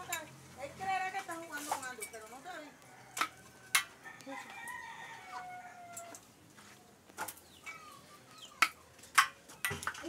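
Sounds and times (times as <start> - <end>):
rooster crowing: 2.8 - 6.2.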